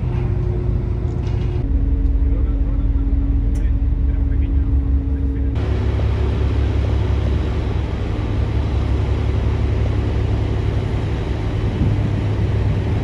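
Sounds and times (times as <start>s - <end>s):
ferry engines rumbling: 0.0s - 13.0s
rushing wind: 0.0s - 13.0s
water noise: 2.6s - 13.0s.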